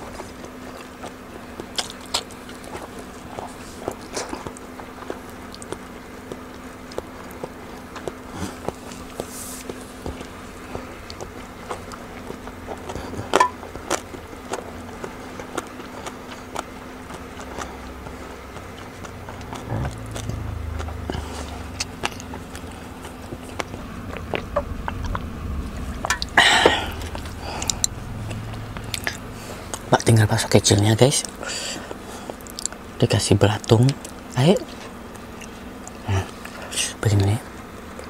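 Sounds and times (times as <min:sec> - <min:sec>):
person chewing with wet mouth clicks: 0:00.0 - 0:25.4, 0:26.0 - 0:32.9, 0:33.6 - 0:36.6
low steady hum: 0:00.0 - 0:38.0.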